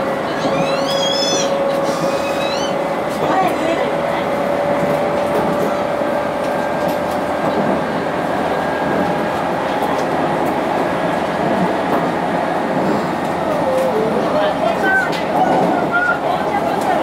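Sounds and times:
wheels rumbling on rail: 0.0s - 17.0s.

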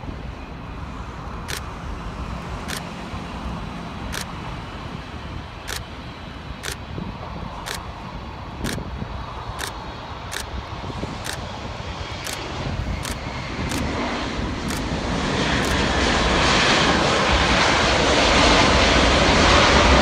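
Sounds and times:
freeway traffic noise: 0.0s - 20.0s
jet engines rumbling: 0.0s - 20.0s
sharp high tick: 13.0s - 13.9s.

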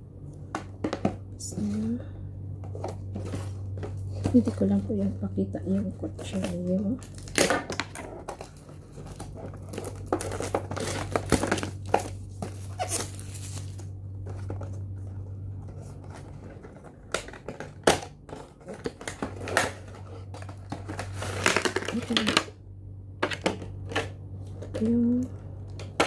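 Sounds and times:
steady low hum: 0.0s - 26.0s
cardboard boxes rustling and scraping: 2.6s - 4.8s, 7.9s - 17.6s
plastic wrapping crinkling: 2.6s - 22.4s.

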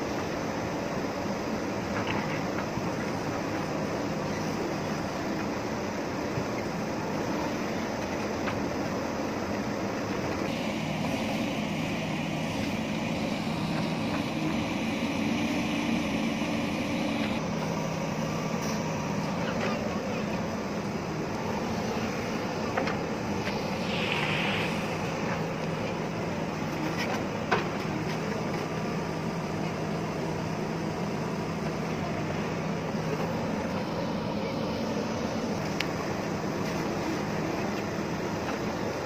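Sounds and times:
diesel engine running under load: 0.0s - 39.0s
brief hiss: 23.4s - 25.4s.

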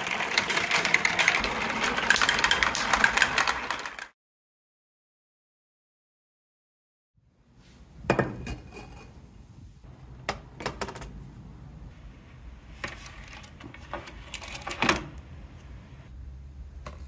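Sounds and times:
plastic pieces clicking and clattering: 0.0s - 4.1s.

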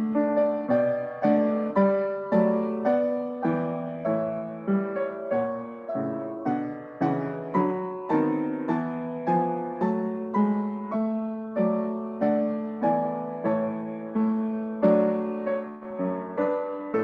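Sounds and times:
hymn played on piano chords: 0.0s - 17.0s.

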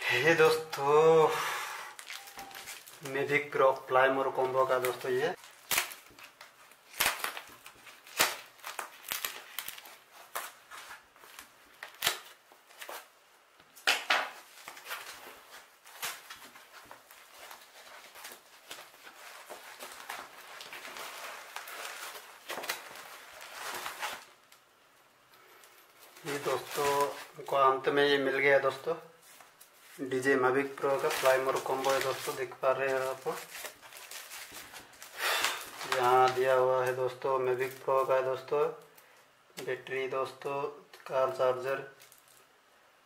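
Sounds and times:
foam wrap rustling and crinkling: 1.9s - 38.5s, 41.3s - 42.6s
scissors snipping foam wrap: 5.4s - 13.1s.

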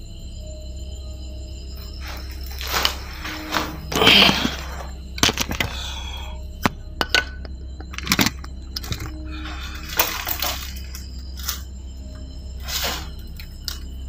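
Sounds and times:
steady low hum: 0.0s - 14.0s
footsteps crunching over rubble: 2.0s - 6.0s.

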